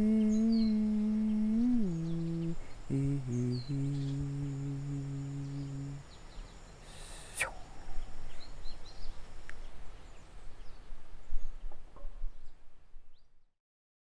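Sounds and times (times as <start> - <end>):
uneven low rumble: 0.0 - 6.0
small birds chirping: 0.0 - 13.3.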